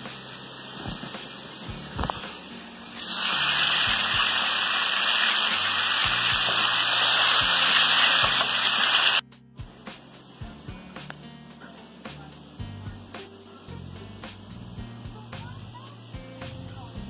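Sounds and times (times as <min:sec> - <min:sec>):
rushing water hiss: 0:00.0 - 0:09.2
low background music: 0:00.0 - 0:17.0.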